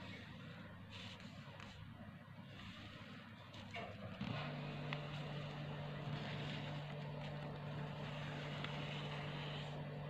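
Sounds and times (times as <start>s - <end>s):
steady low hum: 0.0s - 10.0s
paper being folded: 4.9s - 10.0s.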